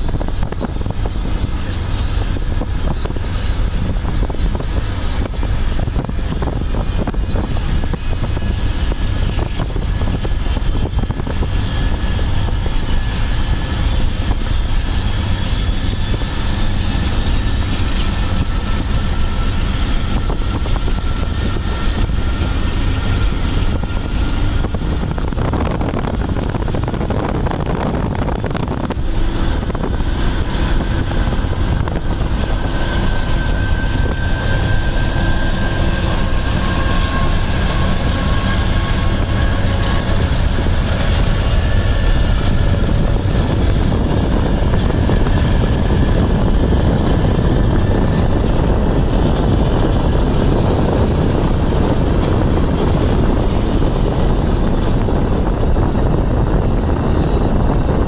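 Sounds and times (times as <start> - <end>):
car wind noise: 0.0 - 58.0
faint high whine: 0.0 - 58.0
passenger train rumbling at speed: 0.0 - 58.0.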